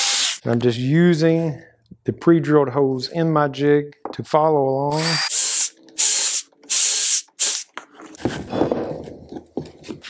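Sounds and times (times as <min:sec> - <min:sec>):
drill boring into wood: 0:04.9 - 0:05.6.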